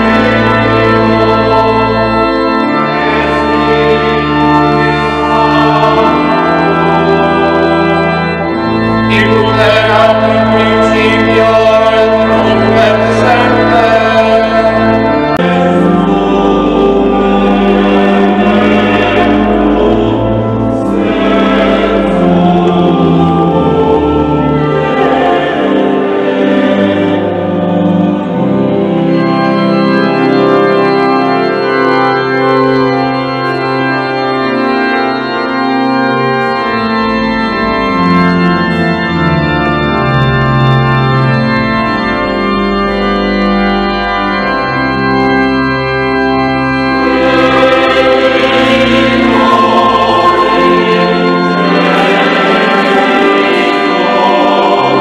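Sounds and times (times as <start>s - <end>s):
choir singing: 0.0s - 35.6s, 43.6s - 55.0s
organ playing held chords: 0.0s - 55.0s.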